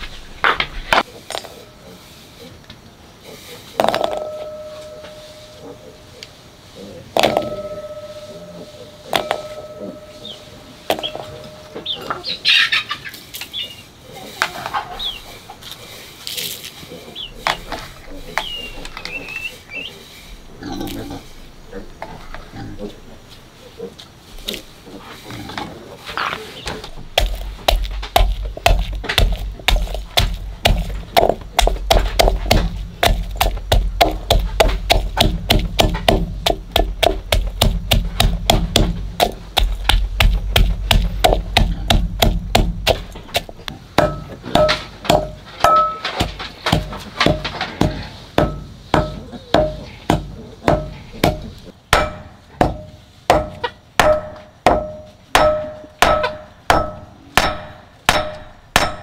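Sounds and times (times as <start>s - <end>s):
hand tool striking: 3.8s - 5.8s, 7.2s - 12.2s, 27.0s - 59.0s.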